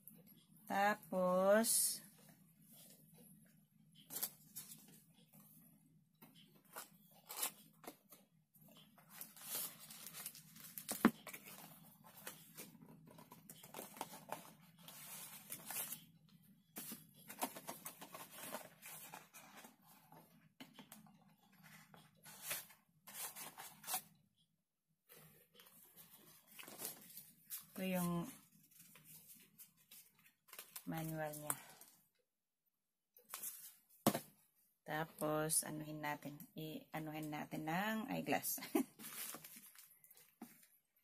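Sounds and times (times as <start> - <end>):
paper packaging rustling: 9.0 - 16.2, 16.8 - 20.2, 20.9 - 24.1, 25.1 - 31.9, 38.9 - 40.7.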